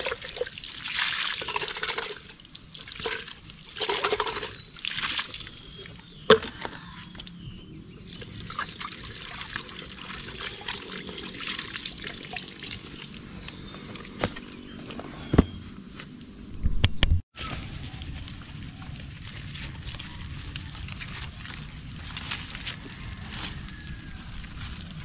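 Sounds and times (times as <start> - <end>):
water trickling from hose: 0.0 - 6.4, 8.2 - 14.1.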